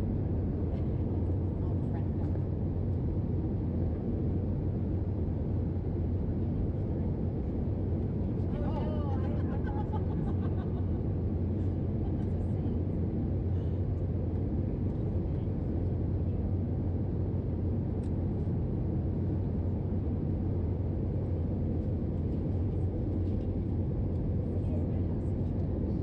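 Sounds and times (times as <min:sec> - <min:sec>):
airliner cabin drone: 0:00.0 - 0:26.0.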